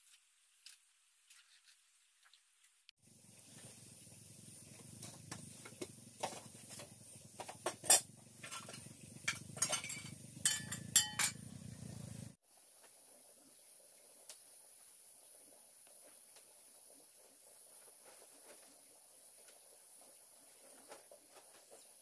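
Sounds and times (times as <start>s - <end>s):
metal pots and utensils clinking: 4.9s - 11.6s.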